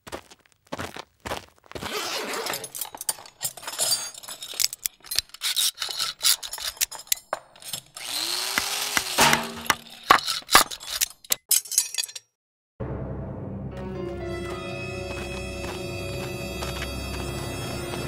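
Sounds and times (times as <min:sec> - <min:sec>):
metal tools scraping on door lock: 0:02.1 - 0:08.0, 0:09.2 - 0:12.2.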